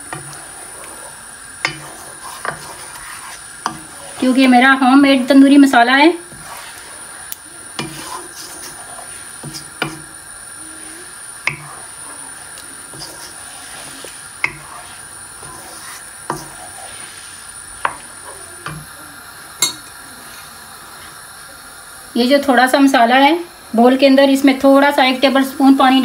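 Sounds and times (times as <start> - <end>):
spoon scraping a frying pan: 0.0 - 10.2, 10.8 - 19.0, 19.6 - 20.0
faint steady hiss: 0.0 - 26.0.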